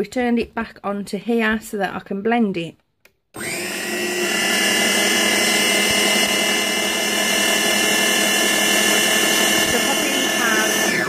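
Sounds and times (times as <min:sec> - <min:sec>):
blender motor whine: 0:03.4 - 0:11.0.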